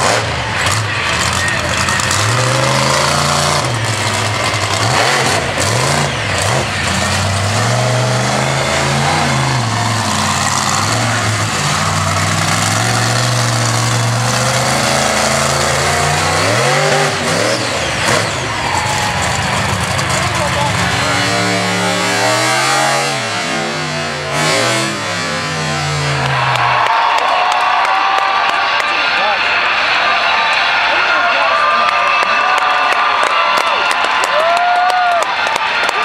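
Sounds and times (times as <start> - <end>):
truck engine revving hard: 0.0 - 26.9.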